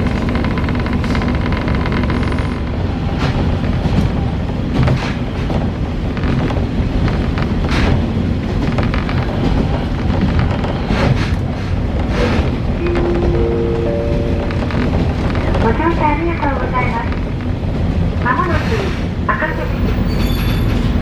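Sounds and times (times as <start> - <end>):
railcar engine rumble: 0.0 - 21.0
rising steady tones: 12.8 - 15.2.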